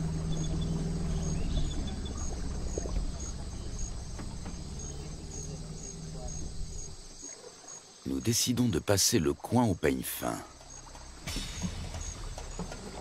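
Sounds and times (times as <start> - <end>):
low steady hum: 0.0 - 7.2
insects chirping: 0.0 - 13.0.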